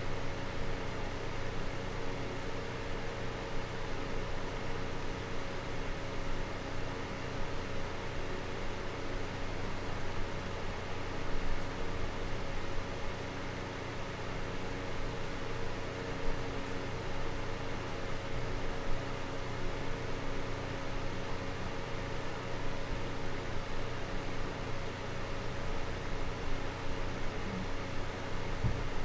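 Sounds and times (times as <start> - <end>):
desk fan running: 0.0 - 29.0.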